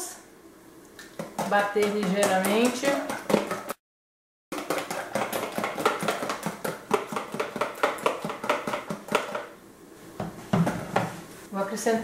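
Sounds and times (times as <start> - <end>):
eggs beaten in plastic tub: 1.0 - 3.8, 4.5 - 9.6.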